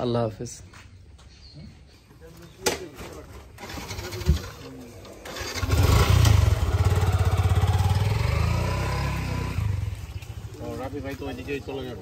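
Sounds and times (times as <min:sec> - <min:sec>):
engine running: 0:05.2 - 0:12.0.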